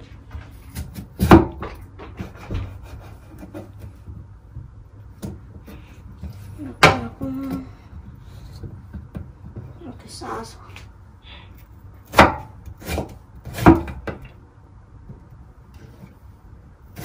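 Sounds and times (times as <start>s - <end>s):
knife cutting potato on board: 0.6s - 7.6s, 12.0s - 14.3s.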